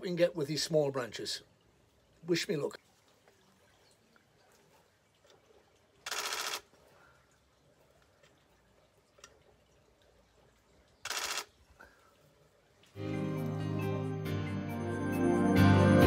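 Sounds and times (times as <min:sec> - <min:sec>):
camera shutter firing in bursts: 0:06.0 - 0:06.7, 0:11.0 - 0:11.5.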